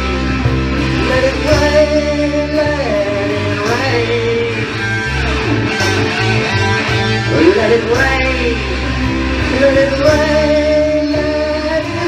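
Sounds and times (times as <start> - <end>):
electric guitar playing: 0.0 - 12.0
man singing long sliding notes: 0.8 - 5.2, 7.2 - 12.0.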